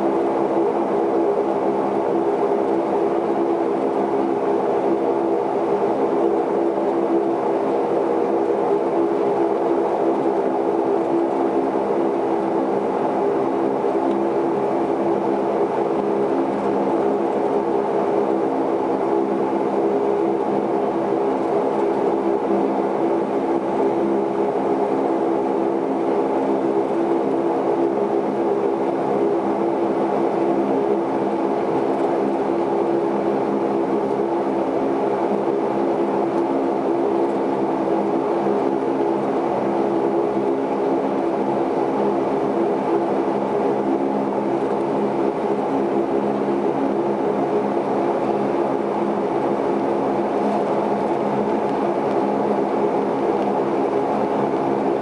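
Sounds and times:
turboprop engines droning: 0.0s - 55.0s.

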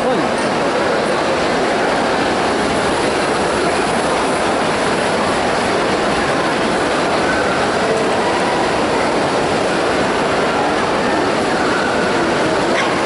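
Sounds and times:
crowd talking in a hall: 0.0s - 13.0s.

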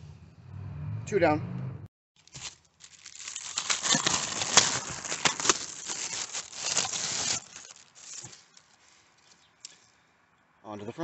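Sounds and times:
plastic bag crinkling: 2.2s - 8.8s.

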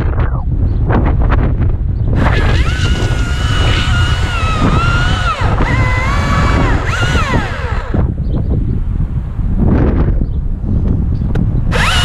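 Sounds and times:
wind rumble on microphone: 0.0s - 12.0s
chainsaw cutting wood: 2.2s - 8.2s, 11.7s - 12.0s.

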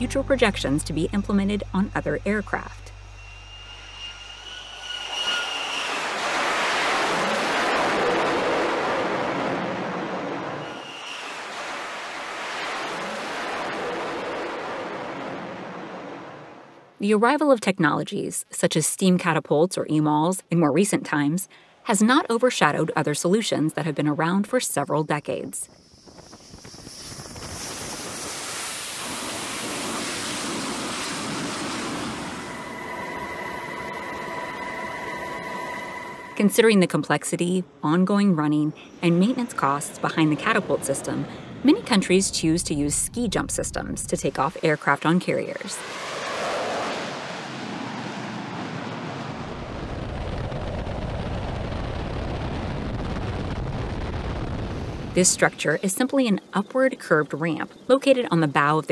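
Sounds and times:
deep low rumble: 0.0s - 5.2s, 41.2s - 44.6s, 48.4s - 55.2s
jet engine rushing: 0.0s - 16.8s, 25.8s - 37.8s, 38.4s - 55.2s.

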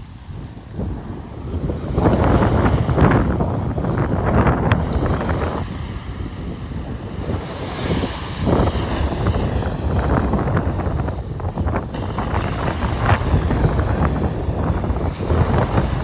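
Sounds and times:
waves washing up beach: 0.0s - 16.0s
wind buffeting microphone: 0.0s - 16.0s.

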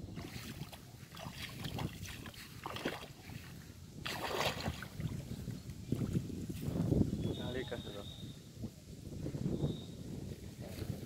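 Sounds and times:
water sloshing and splashing: 0.0s - 6.3s
wind on microphone: 0.0s - 11.0s.

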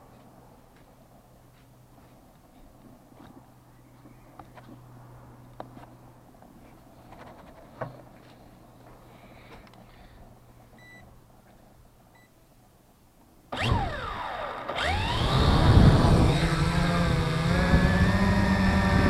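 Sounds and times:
short electronic beeps: 10.8s - 11.1s
drone propeller whir: 13.5s - 19.0s.

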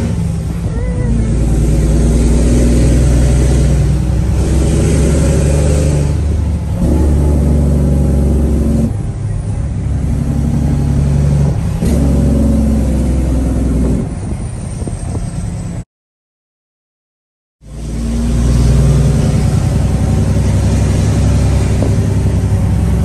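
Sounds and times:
diesel truck engine under load: 0.0s - 15.8s, 17.7s - 23.0s.

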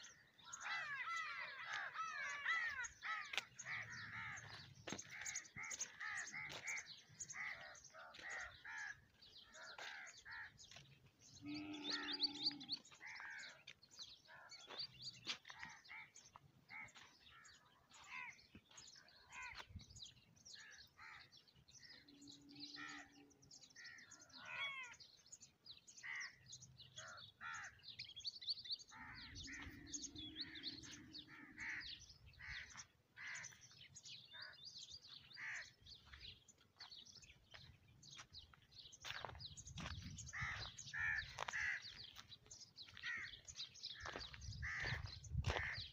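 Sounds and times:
birds chirping: 0.0s - 45.9s
crow-like caws: 0.1s - 10.6s, 11.5s - 13.6s, 27.0s - 27.8s, 28.9s - 33.7s, 35.4s - 36.2s, 40.3s - 42.0s, 42.9s - 43.4s, 44.0s - 45.9s.

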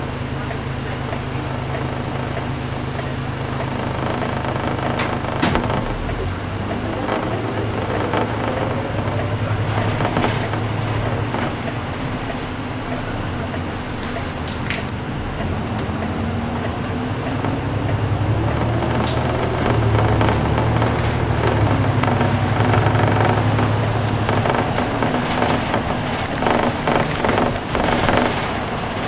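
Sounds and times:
bus engine and road hum: 0.0s - 29.0s
short clicks and rattles: 16.8s - 29.0s.

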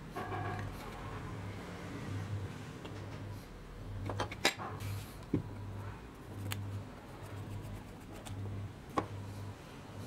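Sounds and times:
faint low hum: 4.8s - 10.0s.

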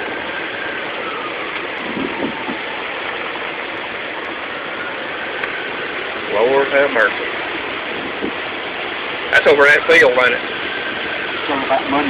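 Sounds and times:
distant ambulance siren wailing: 0.0s - 12.0s
steady rushing noise: 0.0s - 12.0s.

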